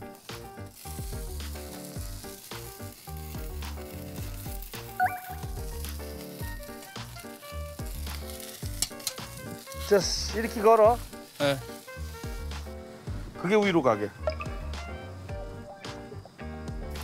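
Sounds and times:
meat sizzling on a grill: 0:00.0 - 0:17.0
background music with bass beat: 0:04.9 - 0:06.0, 0:14.2 - 0:17.0.

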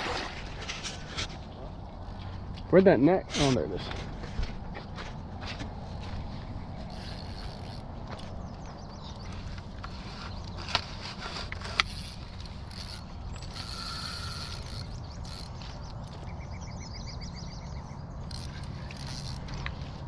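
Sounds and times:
fishing reel clicking: 0:06.9 - 0:07.9, 0:10.4 - 0:15.6, 0:18.2 - 0:19.7.

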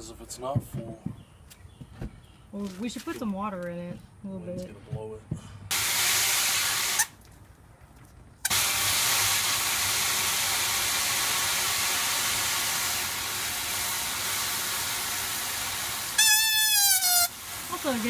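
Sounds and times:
hose spray hissing on plastic lid: 0:05.7 - 0:07.2, 0:08.5 - 0:18.0.

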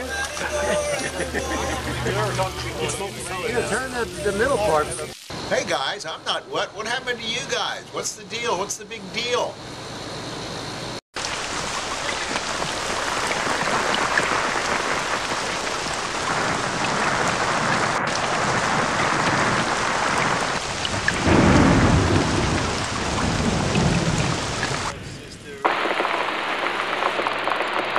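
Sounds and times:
rain falling on a wet road: 0:11.2 - 0:25.0, 0:25.7 - 0:27.9.

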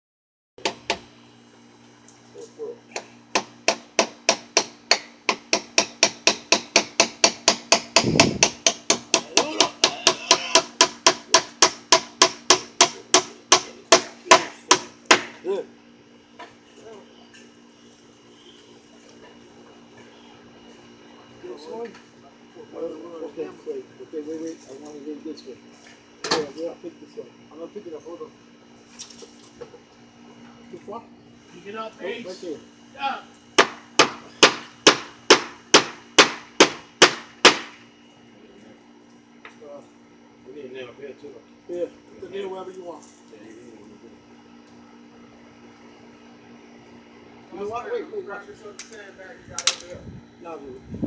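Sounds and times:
hammer driving nails into wood: 0:03.3 - 0:15.3, 0:33.6 - 0:37.8.

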